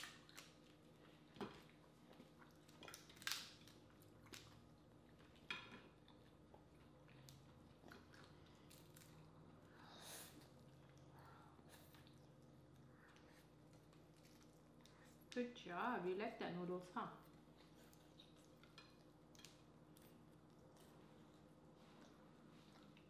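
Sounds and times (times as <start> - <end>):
quiet chewing: 0.0 - 15.6, 17.0 - 23.0
crab shell cracking: 2.6 - 4.6.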